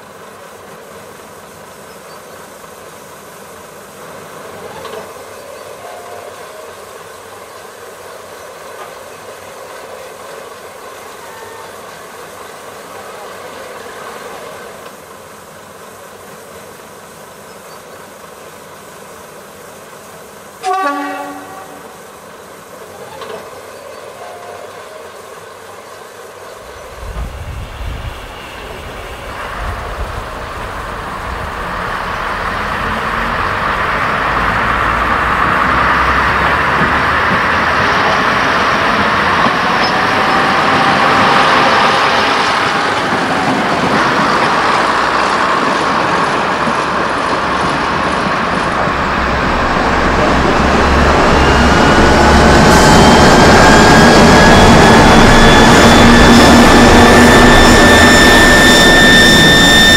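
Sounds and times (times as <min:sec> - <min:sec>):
locomotive horn blast: 0:20.6 - 0:22.0, 0:49.2 - 0:59.9
diesel engine rumble: 0:26.6 - 0:59.9.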